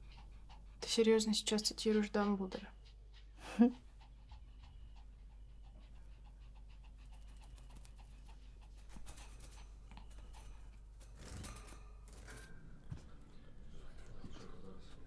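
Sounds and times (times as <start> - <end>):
small dog panting: 0.0 - 11.2, 12.9 - 15.0.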